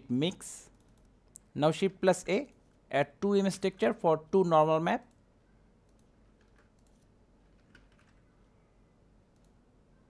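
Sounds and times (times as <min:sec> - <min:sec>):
low background hiss: 0:00.0 - 0:10.0
keyboard and mouse clicks: 0:00.7 - 0:01.5, 0:05.8 - 0:08.3, 0:09.3 - 0:09.6.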